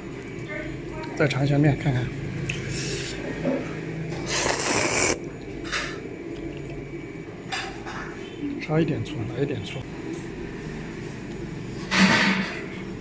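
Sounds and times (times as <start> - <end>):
person slurping noodles: 4.2 - 5.2.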